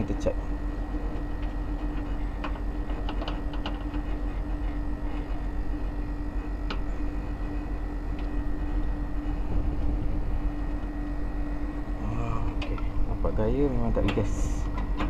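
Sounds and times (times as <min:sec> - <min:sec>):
air conditioner humming: 0:00.0 - 0:15.0.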